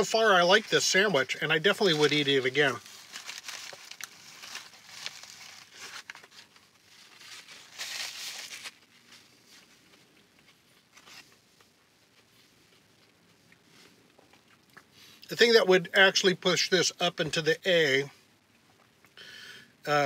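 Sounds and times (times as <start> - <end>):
paper wrapper crinkling: 1.6 - 11.7
paper napkin rustling: 1.8 - 13.0.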